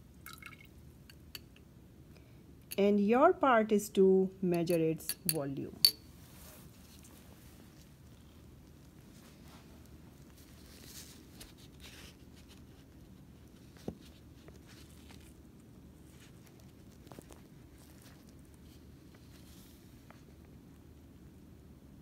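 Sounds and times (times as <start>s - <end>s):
low steady hum: 0.0s - 22.0s
rustling of handling: 6.1s - 20.7s.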